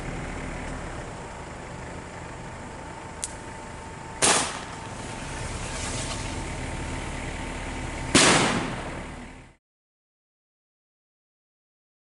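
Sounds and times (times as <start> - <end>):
firecracker bangs: 4.2 - 4.8, 8.1 - 9.0.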